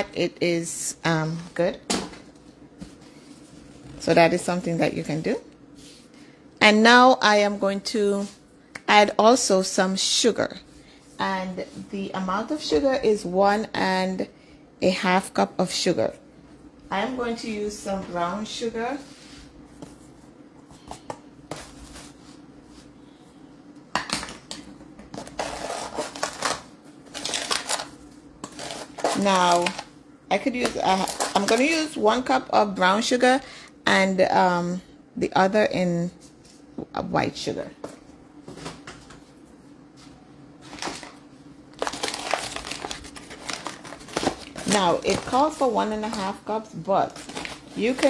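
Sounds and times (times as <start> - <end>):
faint steady hum: 0.0 - 48.0
sugar container rustling and scraping: 25.2 - 29.9
sugar bag crinkling: 25.2 - 32.0, 40.7 - 48.0.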